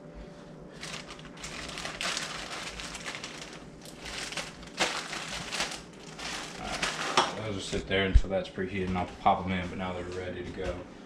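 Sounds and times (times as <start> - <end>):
plastic bag crinkling: 0.8 - 7.8.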